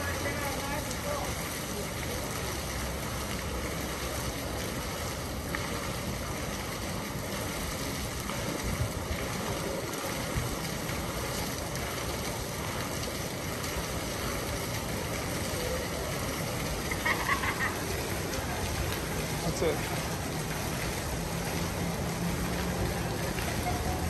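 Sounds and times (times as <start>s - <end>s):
fountain water splashing: 0.0s - 24.0s.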